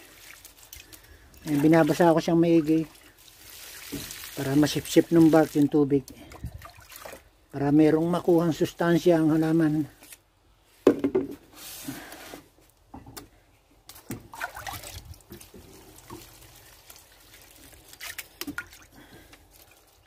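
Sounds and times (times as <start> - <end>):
water pouring and splashing: 0.0 - 7.4, 13.9 - 20.0.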